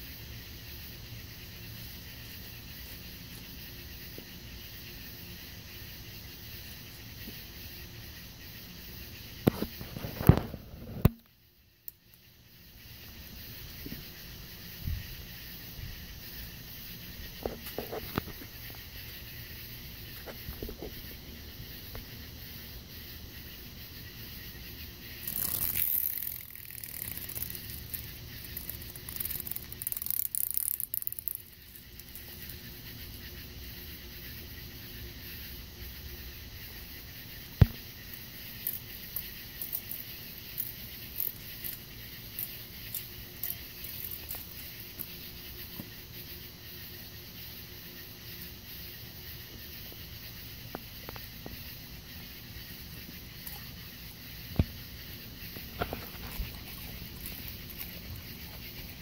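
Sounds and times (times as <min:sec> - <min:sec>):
insect chorus trilling: 0:00.0 - 0:59.0.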